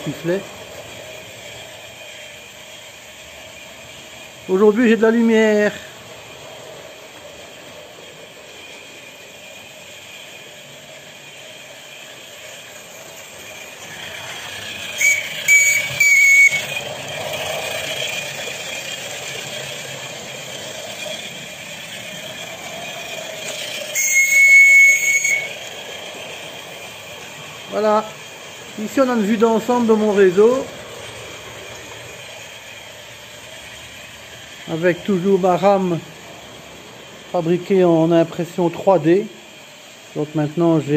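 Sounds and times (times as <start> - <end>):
steam hissing: 0.0 - 40.9
steam whistle toots: 14.7 - 16.9, 23.5 - 25.7.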